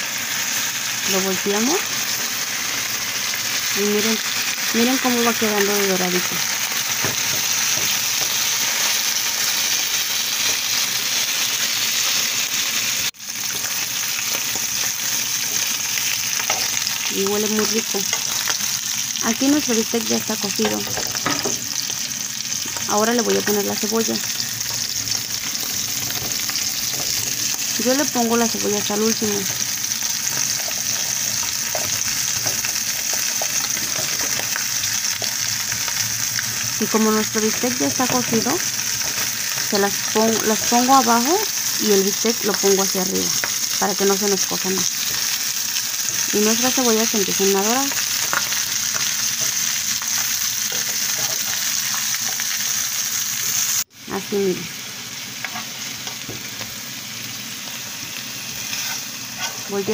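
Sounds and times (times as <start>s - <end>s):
steaks sizzling in frying pan: 0.0s - 59.9s
spatula turning meat: 5.4s - 11.1s, 13.4s - 53.6s, 58.4s - 59.9s.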